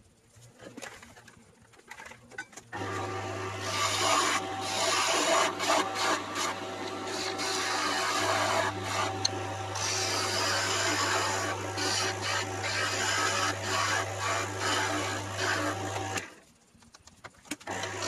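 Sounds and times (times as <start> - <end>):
chisel scraping spinning wood: 2.8 - 16.3
wood lathe motor hum: 2.8 - 16.3, 17.7 - 18.0.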